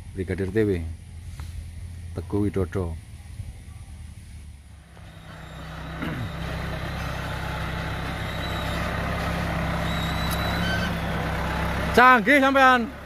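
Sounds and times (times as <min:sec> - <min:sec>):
heavy diesel engine running: 0:03.9 - 0:13.0.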